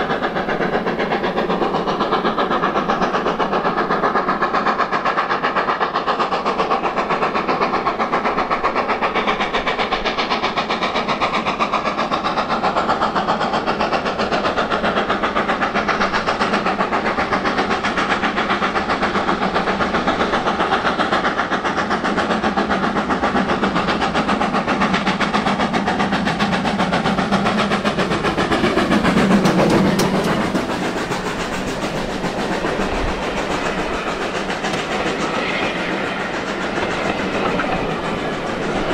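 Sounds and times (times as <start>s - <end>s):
steam locomotive exhaust beats: 0.0s - 38.9s
wheels clattering on rail joints: 13.6s - 38.9s.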